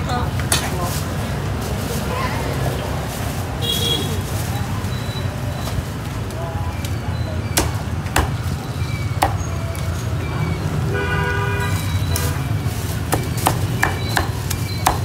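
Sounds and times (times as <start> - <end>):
low street rumble: 0.0 - 15.0
vehicle horn: 3.6 - 4.3, 10.9 - 12.6
cleaver chopping meat: 7.5 - 9.5, 13.0 - 15.0.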